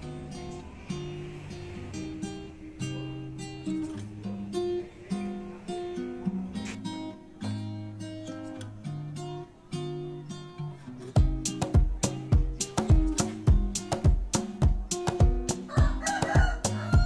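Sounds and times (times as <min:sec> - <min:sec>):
acoustic guitar picking and strumming: 0:00.0 - 0:17.0.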